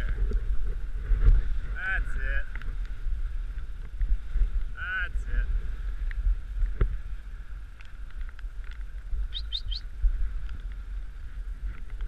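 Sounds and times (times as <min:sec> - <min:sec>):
sled runners rumbling on snow: 0:00.0 - 0:12.0
quick high chirps: 0:09.3 - 0:09.9.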